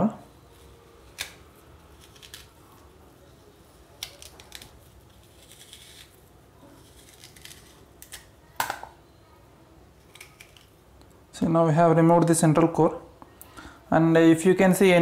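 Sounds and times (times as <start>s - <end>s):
melon baller scraping pear: 0.4s - 8.3s.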